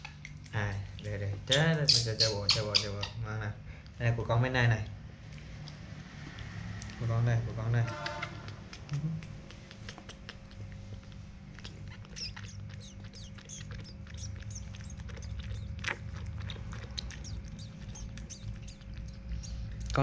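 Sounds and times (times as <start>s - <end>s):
low steady hum: 0.0s - 20.0s
baby monkey sucking from bottle: 8.0s - 20.0s.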